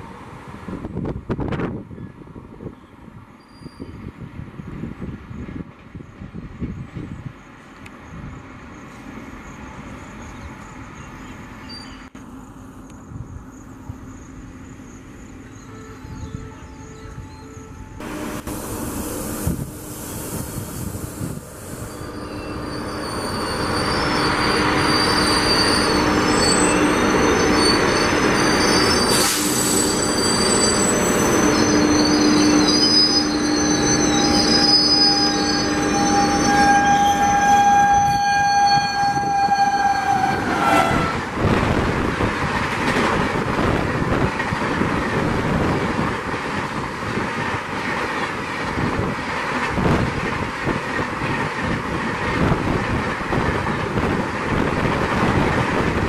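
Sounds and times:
train passing at speed: 0:00.0 - 0:56.0
locomotive horn blast: 0:15.6 - 0:18.8, 0:22.1 - 0:41.5.

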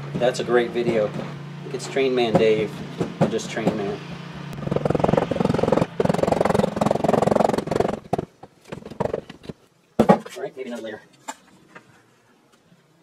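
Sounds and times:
pneumatic rammer hammering: 0:00.0 - 0:10.3.

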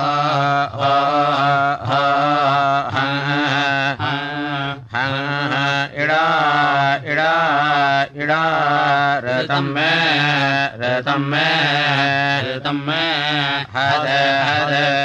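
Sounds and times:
person chanting: 0:00.0 - 0:15.0.

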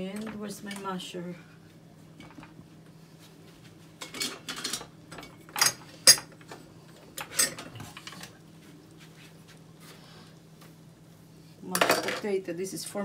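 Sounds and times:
metal utensils clattering: 0:04.0 - 0:06.4, 0:07.2 - 0:08.2, 0:11.7 - 0:12.3.

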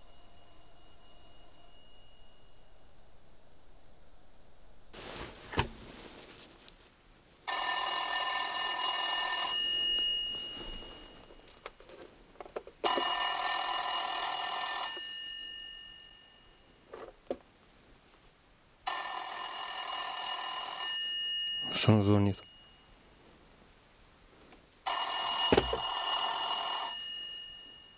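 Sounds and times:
rotary telephone bell ringing: 0:00.0 - 0:02.5, 0:07.5 - 0:11.6, 0:12.8 - 0:16.8, 0:18.9 - 0:22.9, 0:24.9 - 0:27.9.

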